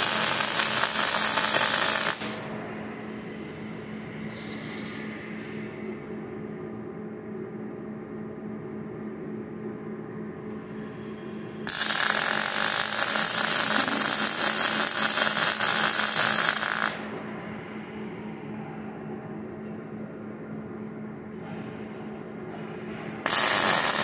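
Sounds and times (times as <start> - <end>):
arc welding crackling sizzle: 0.0 - 2.4, 11.7 - 17.1, 23.3 - 24.0
electrical hum: 0.0 - 24.0.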